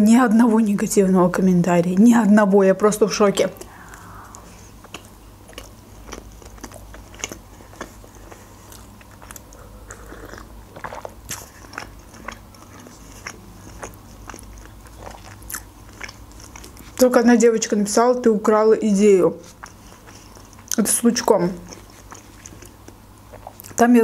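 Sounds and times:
wet chewing and mouth smacks: 3.6 - 17.1, 19.4 - 20.9, 21.6 - 23.8.

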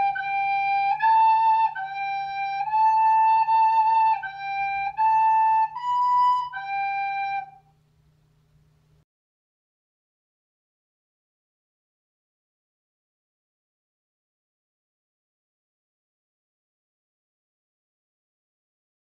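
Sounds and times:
recorder playing slow melody: 0.0 - 7.7.

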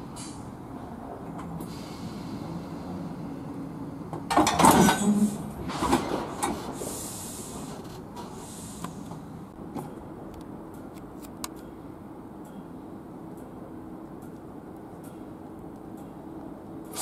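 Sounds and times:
train couplers clanking: 4.1 - 6.9.

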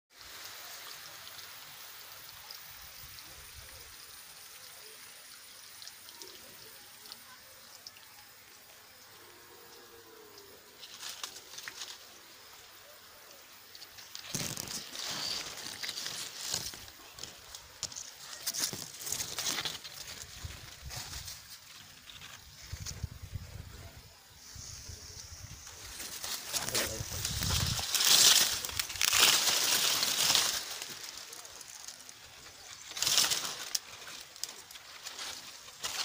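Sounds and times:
dry leaves rustling and crackling: 10.0 - 24.1, 24.8 - 36.0.

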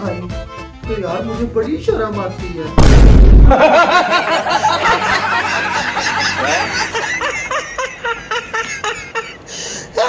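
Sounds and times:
men laughing: 3.4 - 10.0.

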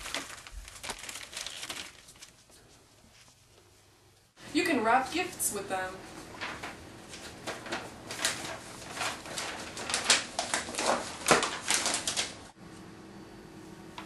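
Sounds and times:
paper crinkling and rustling: 0.0 - 3.5, 6.1 - 12.6
faint steady hum: 0.0 - 14.0.

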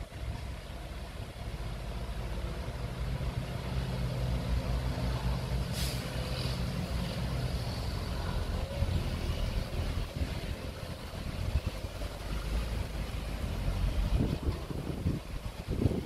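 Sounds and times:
heavy diesel engine running: 0.0 - 16.0
short hiss: 5.6 - 7.2.

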